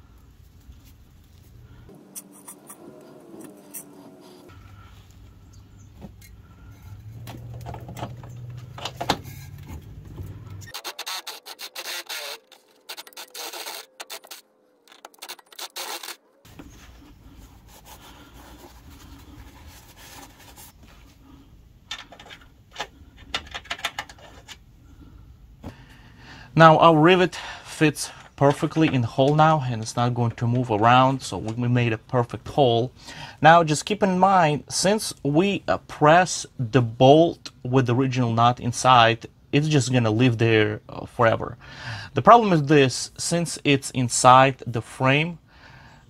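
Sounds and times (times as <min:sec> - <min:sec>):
cordless drill cutting steel: 0:10.7 - 0:14.4, 0:15.4 - 0:16.2.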